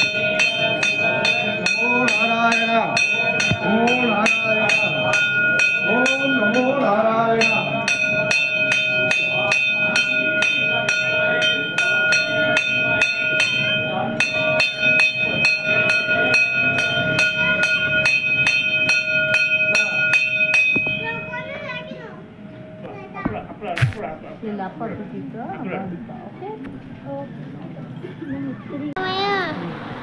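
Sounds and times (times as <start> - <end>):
temple bell rung rapidly: 0.0 - 23.2
murmur of voices: 0.0 - 30.0.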